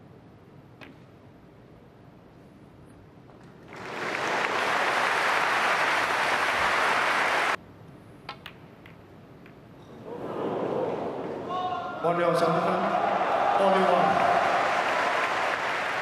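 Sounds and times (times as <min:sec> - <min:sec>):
audience applauding: 0:03.6 - 0:07.6, 0:12.7 - 0:16.0.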